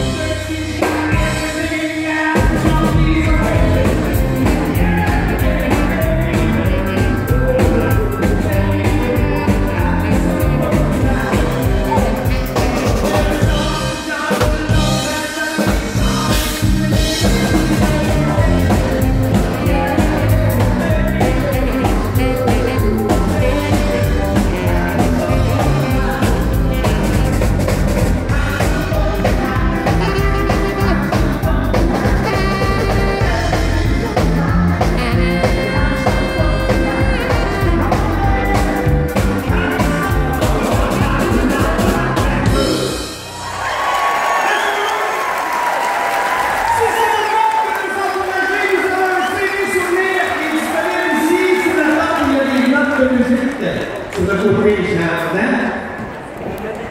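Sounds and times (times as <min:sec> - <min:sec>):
electric guitar: 0:00.0 - 0:44.2
bass guitar: 0:00.0 - 0:44.4
keyboard: 0:00.0 - 0:45.2
male lead singer: 0:00.0 - 0:45.2, 0:46.6 - 0:55.9
drum kit: 0:00.0 - 0:47.5.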